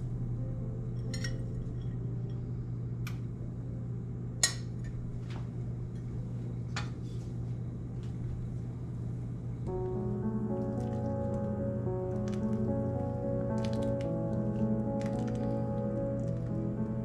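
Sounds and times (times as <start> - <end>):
steady low hum: 0.0 - 17.0
kitchenware clinking: 1.0 - 2.0.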